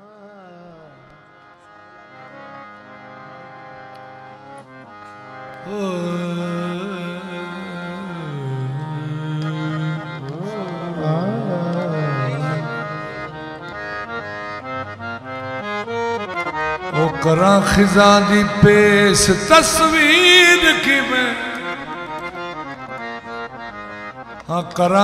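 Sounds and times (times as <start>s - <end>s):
man singing wordless gliding vocals: 0.0s - 1.2s, 5.6s - 13.7s, 16.9s - 22.9s, 24.5s - 25.0s
harmonium drone and melody: 0.0s - 25.0s.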